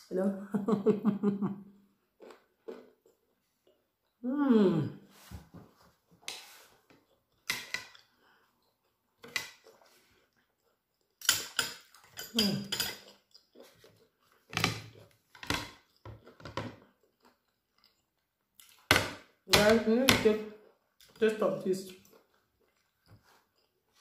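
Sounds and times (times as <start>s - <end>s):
cutlery clinking on ceramic plates: 7.4s - 8.1s, 11.2s - 13.3s.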